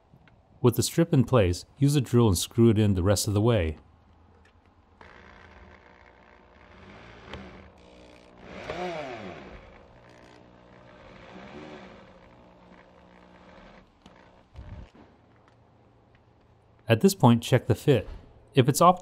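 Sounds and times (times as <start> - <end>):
electric drill driving a screw: 5.0 - 15.0.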